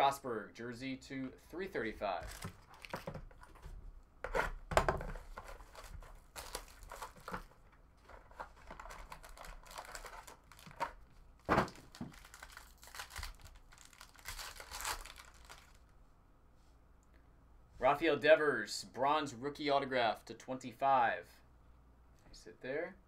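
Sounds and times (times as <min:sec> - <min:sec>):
plastic sleeves rustling: 0:02.2 - 0:16.0
foil wrapper crinkling: 0:05.4 - 0:11.0, 0:11.7 - 0:15.9.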